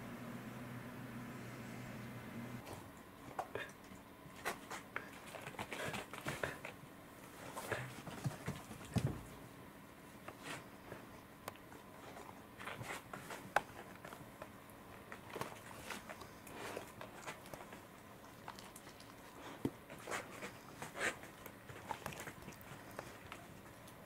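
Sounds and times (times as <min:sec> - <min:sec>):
cat chewing: 0:11.0 - 0:24.0.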